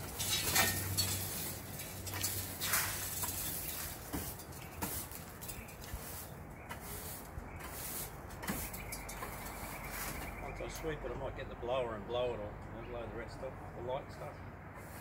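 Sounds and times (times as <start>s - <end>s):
push broom sweeping leaves: 0.0s - 10.4s, 14.8s - 15.0s.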